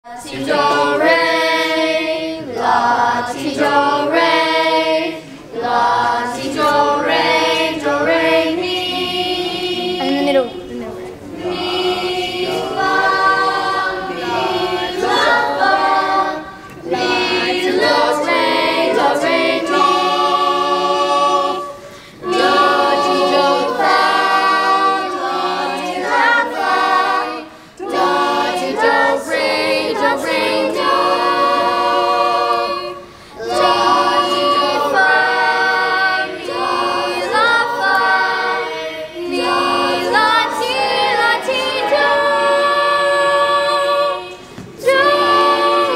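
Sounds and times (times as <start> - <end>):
group of voices singing: 0.0 - 45.9.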